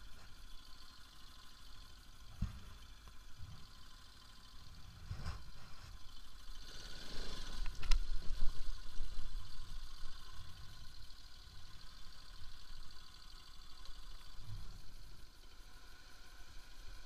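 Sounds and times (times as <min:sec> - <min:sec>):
motorcycle engine at low revs: 0:00.0 - 0:17.0
low thumps over bumps: 0:02.2 - 0:03.7.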